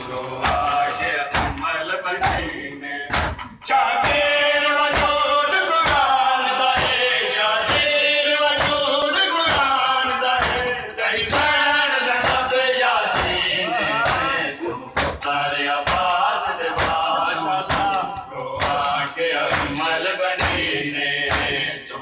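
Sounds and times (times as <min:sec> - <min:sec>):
men chanting a lament: 0:00.0 - 0:22.0
hands striking chests: 0:03.1 - 0:04.2.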